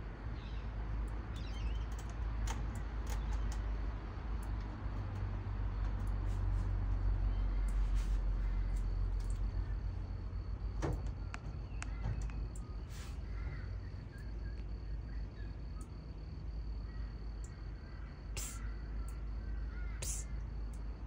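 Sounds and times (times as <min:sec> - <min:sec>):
low outdoor rumble: 0:00.0 - 0:21.0
sharp clicks: 0:01.4 - 0:03.6
crows cawing: 0:11.9 - 0:12.2, 0:13.2 - 0:13.9, 0:16.9 - 0:17.2, 0:17.8 - 0:20.2.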